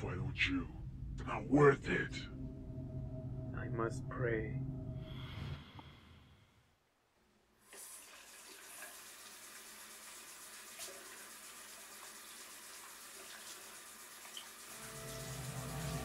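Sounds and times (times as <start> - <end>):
tap water running: 7.6 - 16.0.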